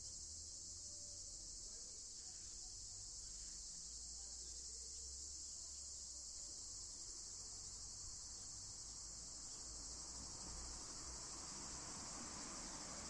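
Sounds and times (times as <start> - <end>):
high-pitched insect chorus: 0.0 - 13.0.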